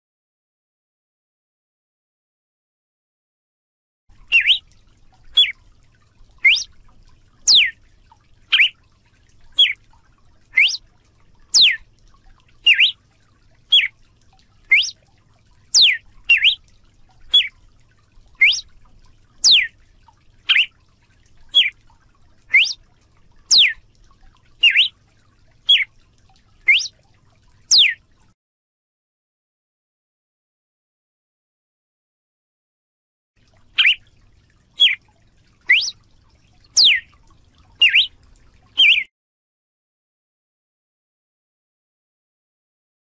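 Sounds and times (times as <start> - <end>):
bird singing whistled notes: 4.3 - 4.6, 5.4 - 5.6, 6.4 - 6.7, 7.5 - 7.7, 8.5 - 8.8, 9.6 - 9.8, 10.6 - 10.8, 11.5 - 11.8, 12.6 - 13.0, 13.7 - 13.9, 14.7 - 15.0, 15.7 - 16.6, 17.3 - 17.5, 18.4 - 18.7, 19.4 - 19.7, 20.5 - 20.7, 21.5 - 21.7, 22.5 - 22.8, 23.5 - 23.8, 24.6 - 24.9, 25.7 - 25.9, 26.7 - 26.9, 27.7 - 28.0, 33.8 - 34.0, 34.8 - 35.0, 35.7 - 36.0, 36.8 - 37.1, 37.8 - 38.2, 38.8 - 39.1.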